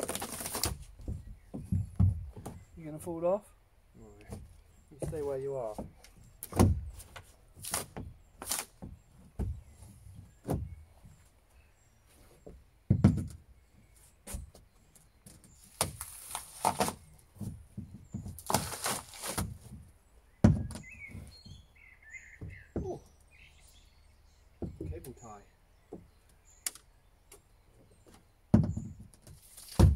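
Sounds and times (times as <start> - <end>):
wood scraping and tearing: 0.0 - 2.7, 4.2 - 10.9, 14.2 - 21.6, 28.2 - 29.9
birds chirping: 0.0 - 29.9
pry bar knocking on plywood: 20.4 - 20.9, 28.5 - 29.0.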